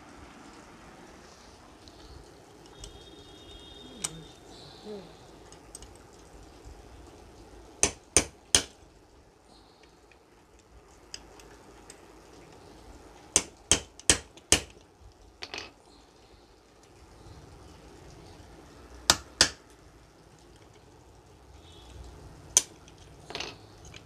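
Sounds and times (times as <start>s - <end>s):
hammer tapping on metal: 7.8s - 8.8s, 13.4s - 14.7s, 19.1s - 19.6s.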